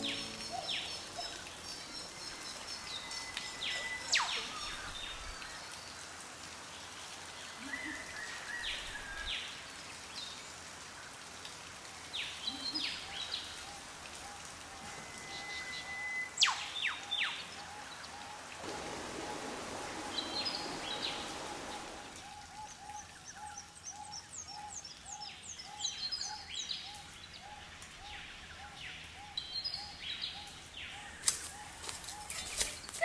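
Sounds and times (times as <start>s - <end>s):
birds high trills: 0.0s - 1.6s, 18.7s - 22.2s
creek water running: 0.0s - 33.0s
birds whip-like whistles: 18.6s - 22.3s.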